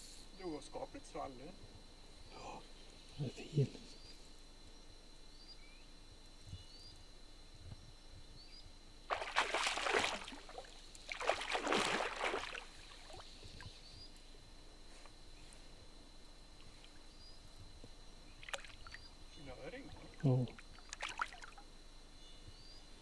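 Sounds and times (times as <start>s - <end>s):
fish splashing at water surface: 9.1s - 13.2s, 18.4s - 19.0s, 20.8s - 21.6s.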